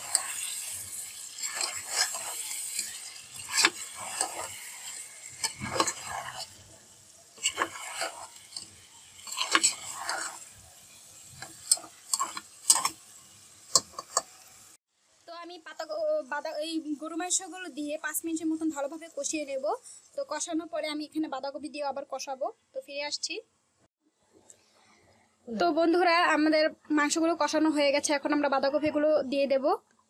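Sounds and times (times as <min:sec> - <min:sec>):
spatula scraping metal pot: 0:00.0 - 0:06.8, 0:07.4 - 0:13.1
meat sizzling: 0:00.0 - 0:14.8.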